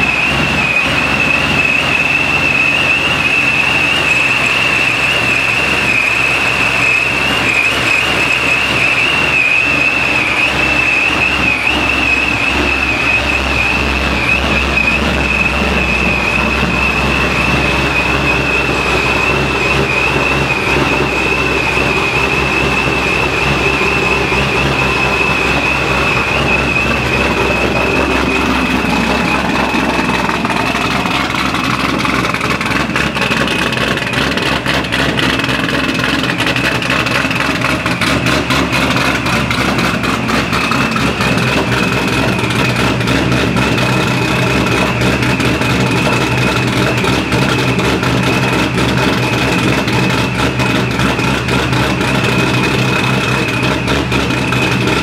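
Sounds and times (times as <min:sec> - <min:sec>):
car engine idling: 0:00.0 - 0:55.0
supercharger whining: 0:00.0 - 0:55.0.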